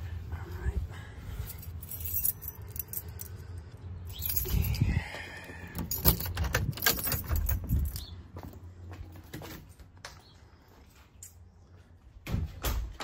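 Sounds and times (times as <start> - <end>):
keys jangling: 1.4 - 5.0, 5.7 - 8.1.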